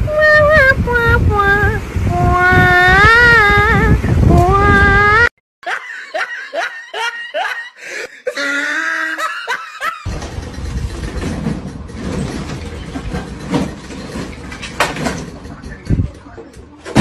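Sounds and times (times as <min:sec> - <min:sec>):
steady rumbling noise: 0:00.0 - 0:05.3, 0:10.1 - 0:17.0
person laughing: 0:05.6 - 0:10.1.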